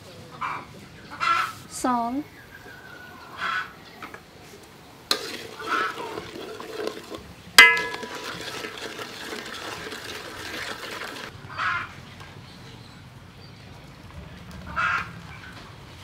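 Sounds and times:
ladle clanging on wok: 5.1s - 7.0s, 7.6s - 10.6s
ladle stirring sauce in a wok: 5.1s - 11.3s
sauce simmering: 5.1s - 11.3s.

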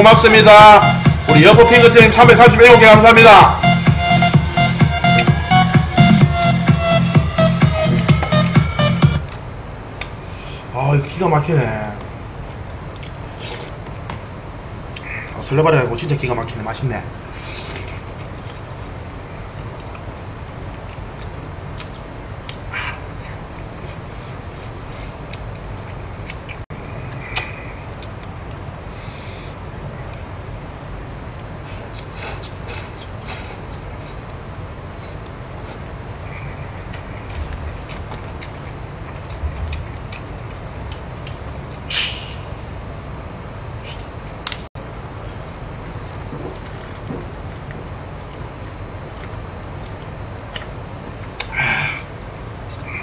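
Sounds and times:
chewing: 12.4s - 13.8s, 17.6s - 28.6s, 35.0s - 41.9s, 45.7s - 51.5s
carbonation hiss: 41.9s - 42.7s.

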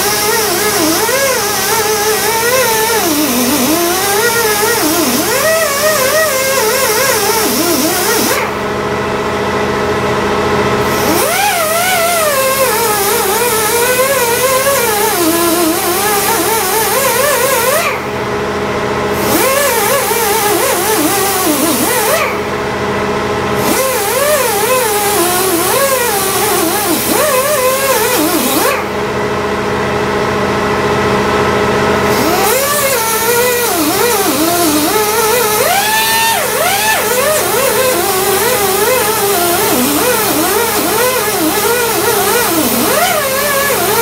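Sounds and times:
die grinder hissing on metal: 0.0s - 8.5s, 10.8s - 18.0s, 19.2s - 22.4s, 23.6s - 28.9s, 32.1s - 44.0s.

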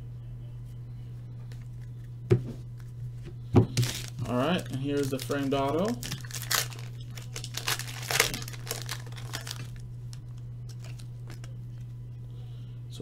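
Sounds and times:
foil wrapper crinkling and tearing: 3.8s - 11.5s.

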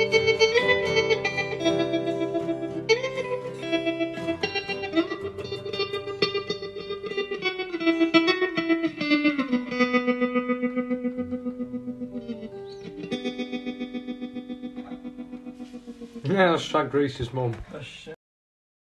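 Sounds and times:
plucked guitar through effects: 0.0s - 17.5s.

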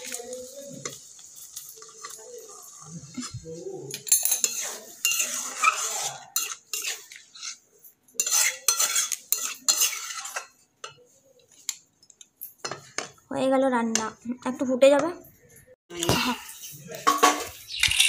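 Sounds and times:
metal spatula scraping a pan: 0.0s - 11.2s.

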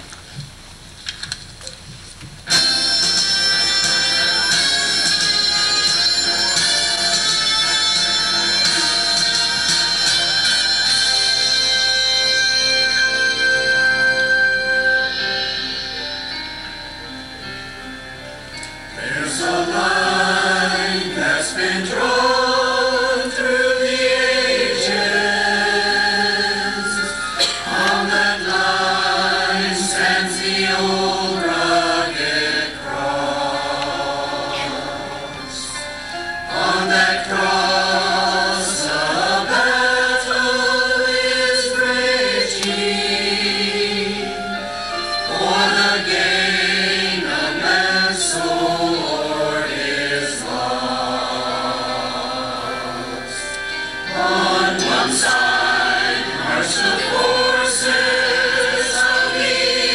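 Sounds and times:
mixed choir singing: 2.5s - 15.8s, 19.0s - 59.9s.

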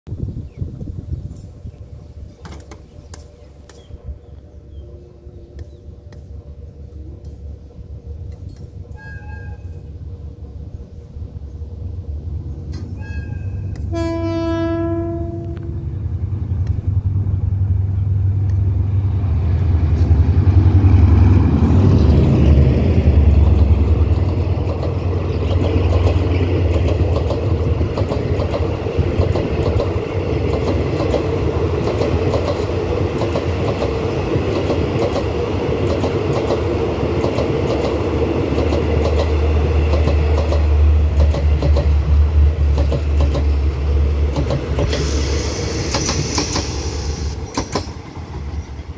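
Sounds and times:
locomotive engine rumble: 0.1s - 48.9s
train horn: 4.4s - 10.2s, 12.8s - 16.2s
train wheels clacking on rails: 18.3s - 48.9s.

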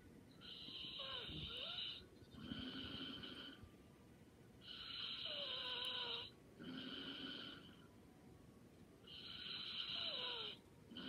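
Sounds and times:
person snoring lightly: 0.5s - 3.6s, 4.6s - 7.9s.

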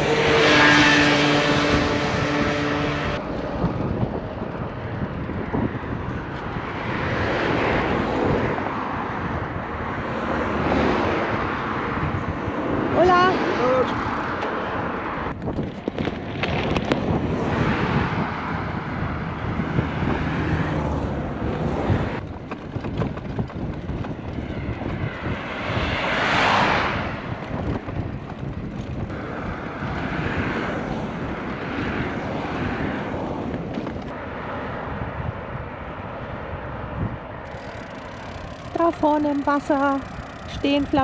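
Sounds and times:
vehicle passing: 0.0s - 15.4s, 16.0s - 41.0s
wind on microphone: 0.0s - 41.0s.

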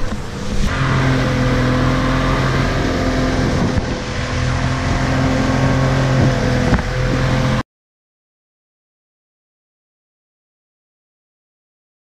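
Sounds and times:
outboard motor running: 0.0s - 7.6s
wind and water spray: 0.0s - 7.6s.

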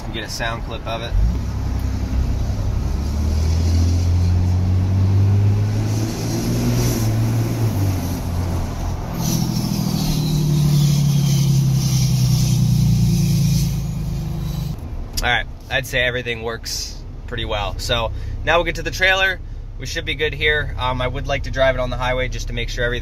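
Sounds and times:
diesel engine droning: 0.0s - 23.0s
turbo whistle: 9.1s - 14.8s.

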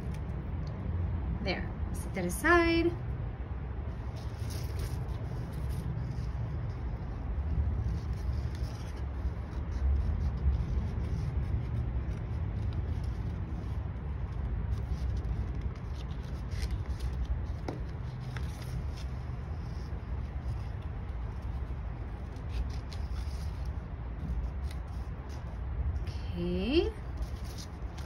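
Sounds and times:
paper handling: 3.9s - 26.0s, 27.0s - 28.0s.

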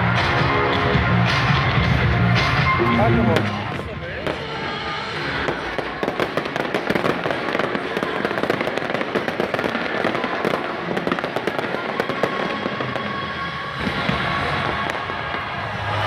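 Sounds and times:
fireworks popping and crackling: 3.0s - 16.0s.

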